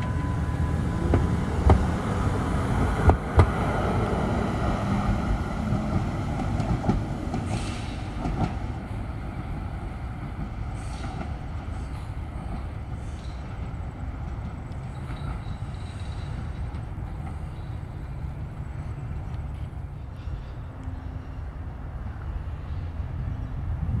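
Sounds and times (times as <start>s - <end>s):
tram rumbling along track: 0.0s - 24.0s
high wheel squeals: 14.9s - 16.7s.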